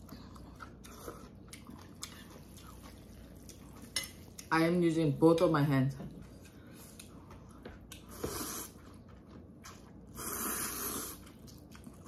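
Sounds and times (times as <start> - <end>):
person slurping noodles: 10.1 - 11.3.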